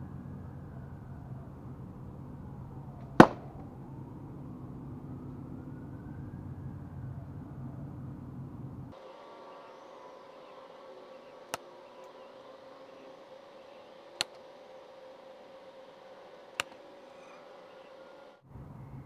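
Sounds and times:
faint steady hum: 0.0 - 19.0
arrows striking foam target: 3.2 - 3.6.

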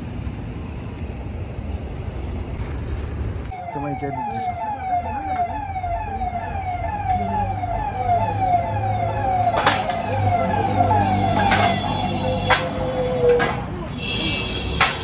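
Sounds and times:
siren-like wail: 3.5 - 13.6
sharp knocks: 14.8 - 15.0.

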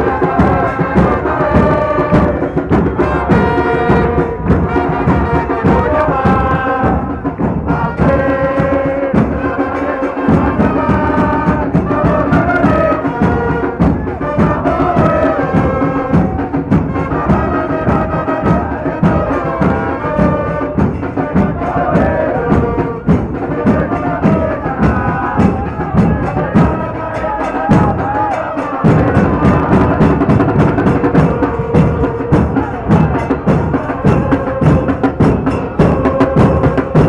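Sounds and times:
brass band playing: 0.0 - 37.0
drums beating: 0.0 - 37.0
football supporters chanting: 0.0 - 37.0.

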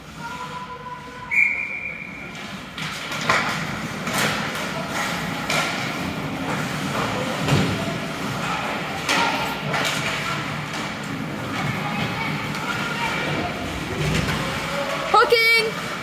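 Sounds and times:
referee's whistle: 1.3 - 2.2.

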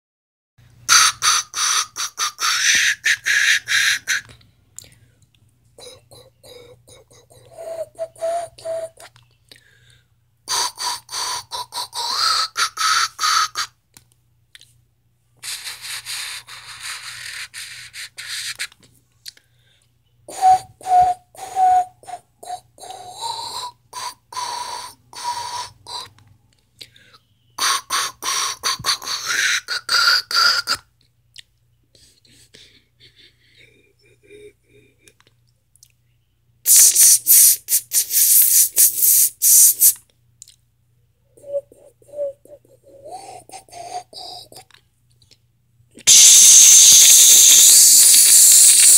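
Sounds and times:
choppy hiss: 36.7 - 40.0, 46.0 - 48.9.

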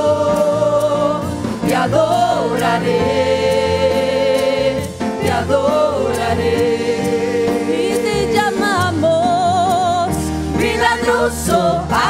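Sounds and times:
people singing worship song: 0.0 - 12.0.

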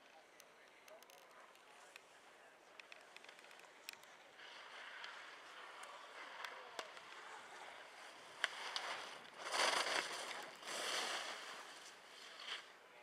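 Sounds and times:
skis scraping on snow: 4.4 - 12.7.

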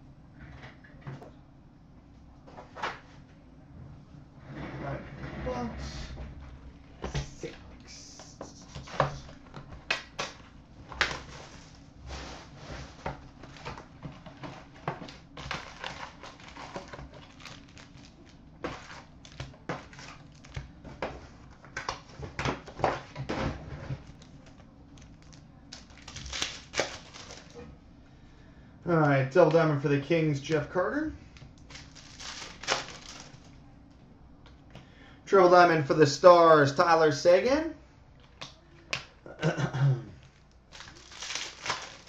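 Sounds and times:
plastic wrap and foil crinkling: 11.0 - 11.8, 12.4 - 20.8, 23.9 - 27.7, 31.4 - 33.6, 40.2 - 42.0.

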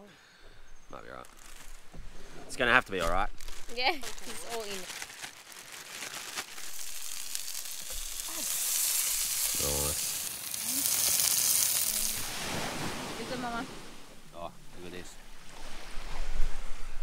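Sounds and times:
fish sizzling in a frying pan: 6.4 - 12.3.

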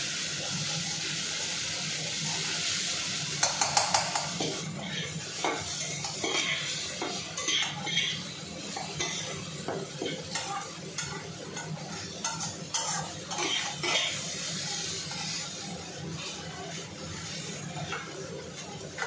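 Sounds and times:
meat sizzling: 0.0 - 19.0
metal spatula scraping pan: 5.4 - 8.2, 10.0 - 15.4.

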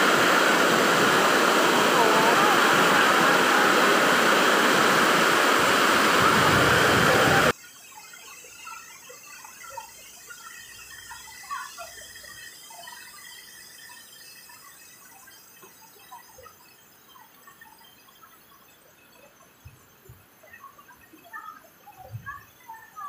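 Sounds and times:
whitewater rushing down waterfall: 0.0 - 7.5.

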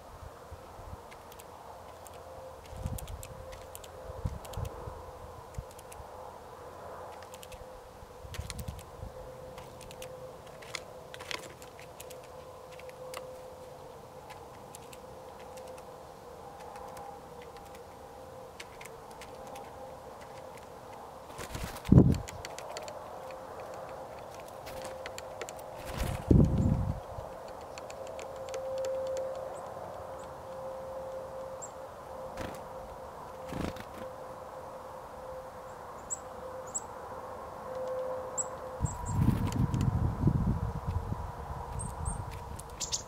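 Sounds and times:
faint steady hum: 0.0 - 43.0
bird pecking seed clicks: 1.1 - 4.7, 7.1 - 7.6, 8.3 - 8.9, 9.6 - 13.3, 14.3 - 15.9, 16.6 - 17.8, 18.6 - 30.0.

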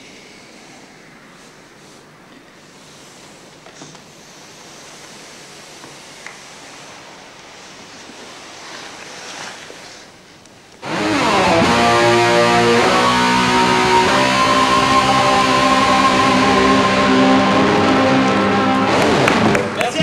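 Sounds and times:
faint hiss: 0.0 - 10.9
loud guitar music with ringing chords: 10.8 - 19.8.

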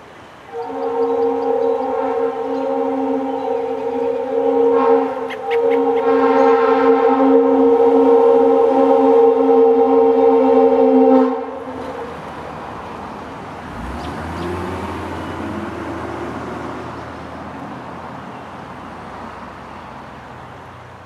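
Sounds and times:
passing vehicle rumble: 0.0 - 21.0
air horn chord: 0.5 - 12.0.

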